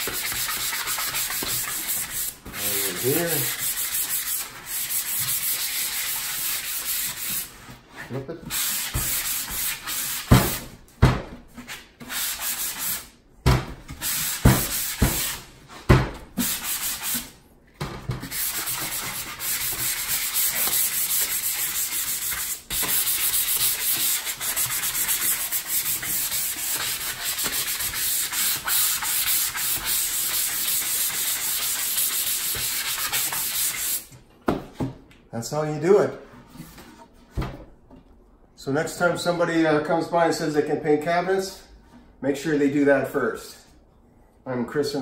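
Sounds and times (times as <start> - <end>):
sandpaper rubbing on wood: 0.0 - 7.6, 8.5 - 10.6, 12.0 - 13.1, 16.4 - 17.3, 18.3 - 34.0.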